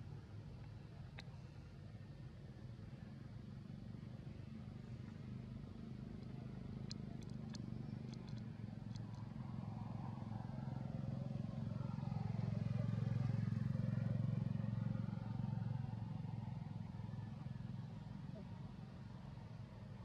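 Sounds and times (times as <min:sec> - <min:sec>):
faint clicks: 0:00.6 - 0:01.4, 0:06.0 - 0:09.4
passing vehicle engine hum: 0:02.0 - 0:20.0.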